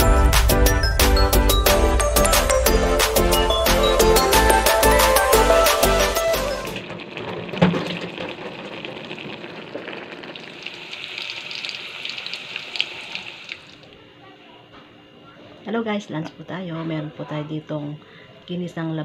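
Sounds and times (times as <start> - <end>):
food sizzling and bubbling in a pan: 6.7 - 13.8.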